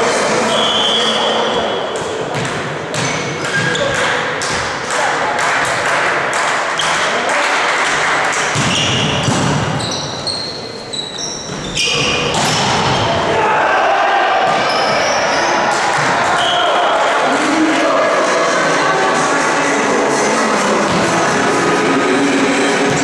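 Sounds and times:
shoes squeaking on court floor: 0.9s - 4.1s, 8.6s - 13.2s, 14.5s - 15.6s
volleyball hits and thumps: 2.0s - 7.1s, 7.7s - 9.9s, 11.5s - 13.2s, 15.7s - 16.4s, 20.9s - 21.4s
players calling: 8.6s - 23.0s.

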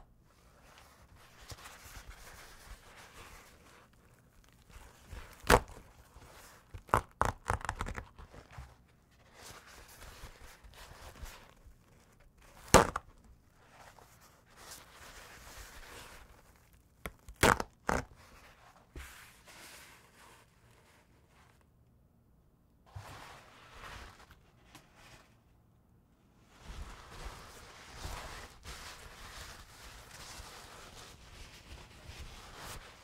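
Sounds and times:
paper towel ripping: 0.6s - 8.1s, 26.5s - 33.0s.

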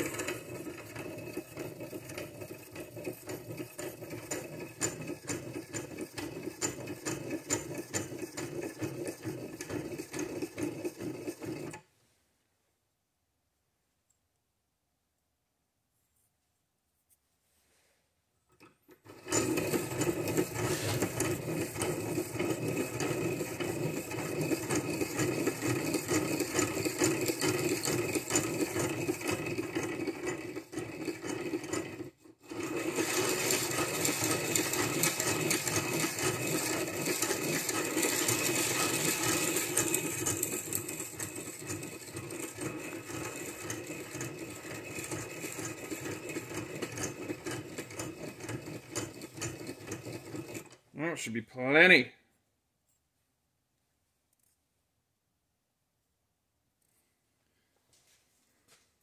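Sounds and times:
metal grinding against stone: 0.0s - 11.8s, 18.6s - 50.8s.

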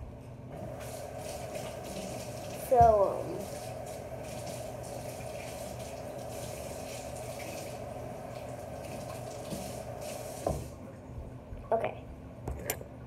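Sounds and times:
tap running into sink: 0.6s - 10.8s
tap knock: 10.4s - 10.7s.

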